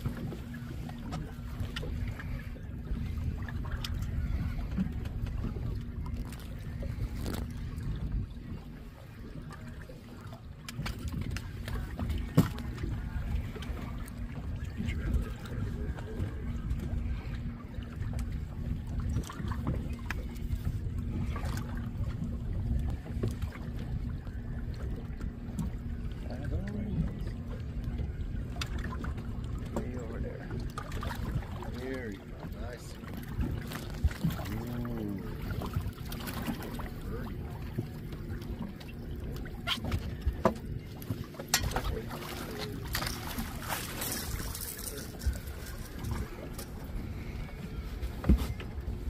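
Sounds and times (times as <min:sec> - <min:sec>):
wind on microphone: 0:00.0 - 0:09.8
outboard motor running slowly: 0:00.0 - 0:49.0.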